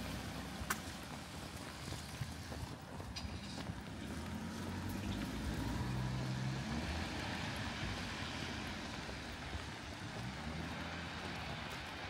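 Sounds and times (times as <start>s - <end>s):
passing engine hum: 3.2s - 12.0s.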